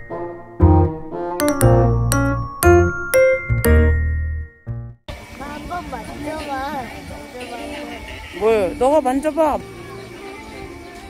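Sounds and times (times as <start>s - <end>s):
light keyboard tune: 0.0s - 5.0s
low bass line: 0.0s - 5.0s.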